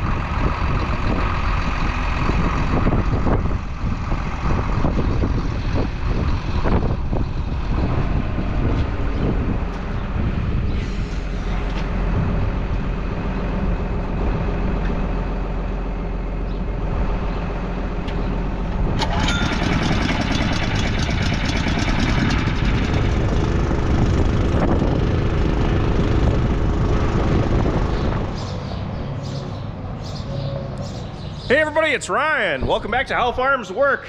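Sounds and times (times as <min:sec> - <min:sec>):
large engine running: 0:00.0 - 0:29.2
dense rapid clatter: 0:19.0 - 0:23.9.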